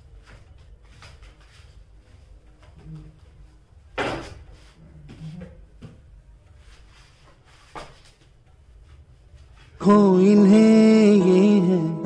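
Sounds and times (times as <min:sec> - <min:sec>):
objects knocking on table: 0:04.0 - 0:04.4.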